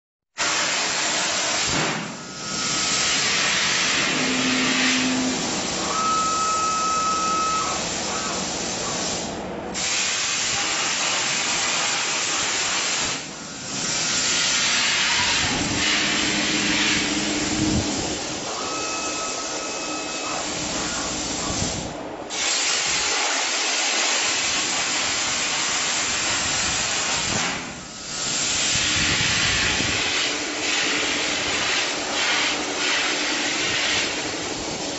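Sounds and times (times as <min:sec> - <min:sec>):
plasma torch hissing: 0:00.4 - 0:05.9, 0:07.6 - 0:18.6, 0:20.4 - 0:34.9
short whining tones: 0:03.7 - 0:08.4, 0:15.0 - 0:21.6.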